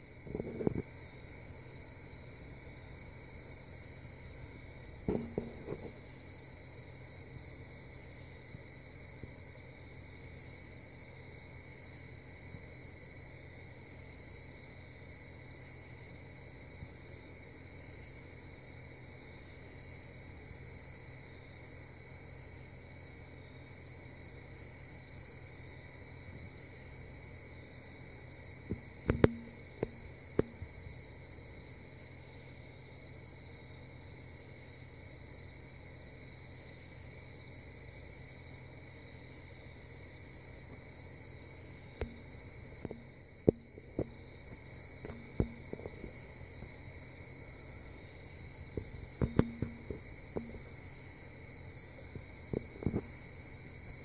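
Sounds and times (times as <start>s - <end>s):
night insects chirring: 0.0s - 54.0s
sharp knocks: 5.1s - 5.9s, 29.1s - 29.6s.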